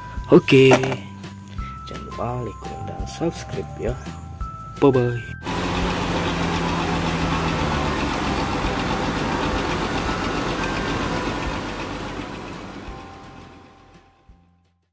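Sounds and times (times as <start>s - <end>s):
jet engines running: 5.4s - 13.8s.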